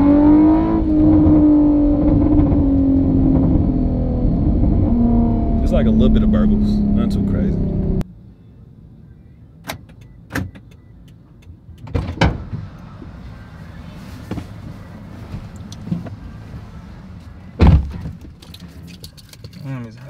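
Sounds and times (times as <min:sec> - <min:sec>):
low steady rumble: 0:00.0 - 0:10.2
car door slamming: 0:17.6 - 0:18.4
car door thumps: 0:17.6 - 0:18.4.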